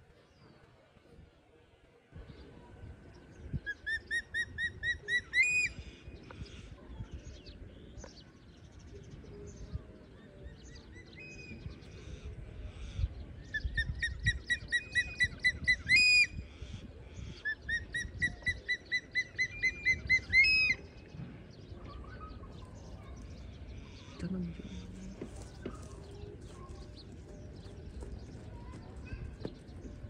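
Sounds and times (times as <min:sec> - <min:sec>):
bird whistling call: 0:17.5 - 0:20.9.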